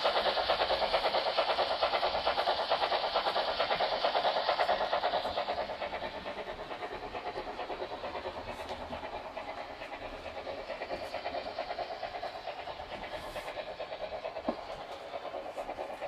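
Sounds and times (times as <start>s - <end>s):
model steam train chuffing: 0.0s - 16.0s.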